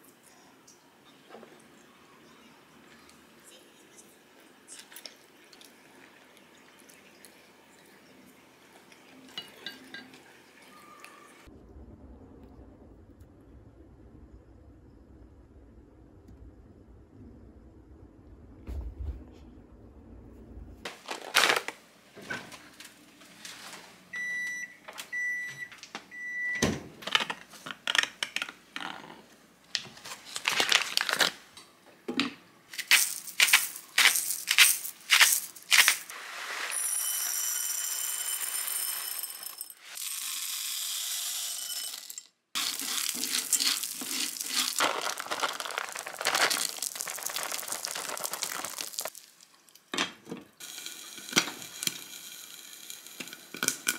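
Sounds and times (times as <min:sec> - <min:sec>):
kernels rattling into pan: 0:32.7 - 0:36.1, 0:41.6 - 0:49.4
salt grinder crunching: 0:32.8 - 0:36.1, 0:42.6 - 0:49.2.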